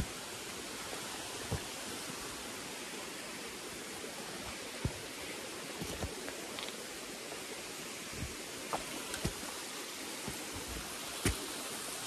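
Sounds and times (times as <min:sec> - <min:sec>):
knocks and scuffs on rock: 0:05.8 - 0:06.8, 0:08.2 - 0:09.5, 0:10.2 - 0:11.5.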